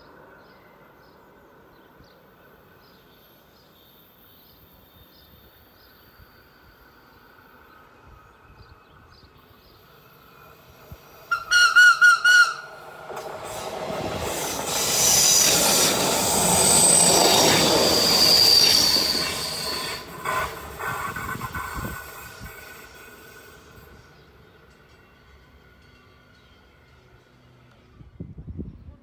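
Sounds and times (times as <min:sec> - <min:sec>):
train passing: 0:00.0 - 0:28.8
train horn toots: 0:11.3 - 0:12.7
wheels squealing: 0:11.3 - 0:24.2.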